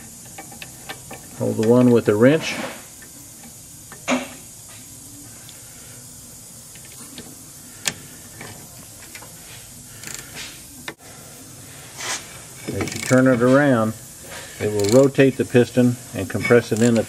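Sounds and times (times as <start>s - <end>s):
faint steady hiss: 0.0s - 17.0s
wrench and socket clicking: 12.7s - 13.3s, 14.6s - 15.2s.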